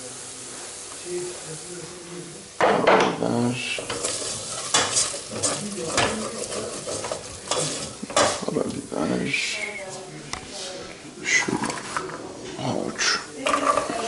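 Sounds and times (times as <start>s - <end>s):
faint sizzle: 0.0s - 14.0s
spoon scraping metal pot: 3.8s - 8.4s, 13.0s - 14.0s.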